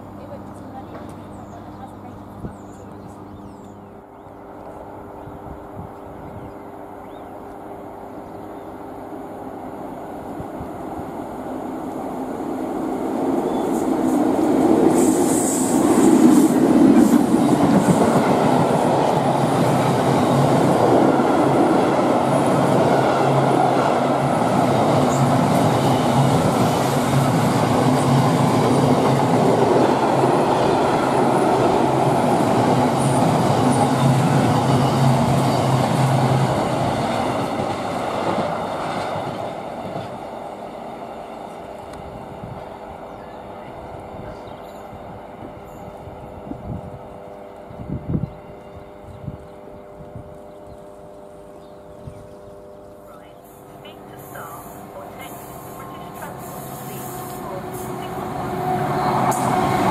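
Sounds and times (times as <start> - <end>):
diesel locomotive passing: 0.0 - 59.9
train wheels rolling on rails: 8.8 - 59.9.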